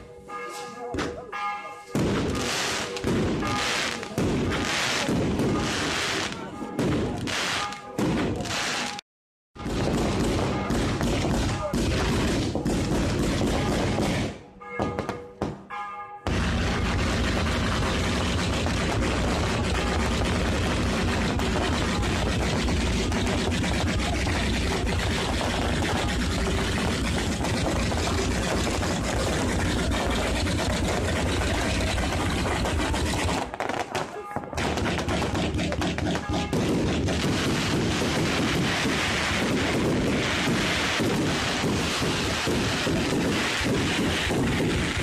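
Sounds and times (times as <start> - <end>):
fireworks bangs and crackling: 0.9 - 9.0, 9.6 - 45.0.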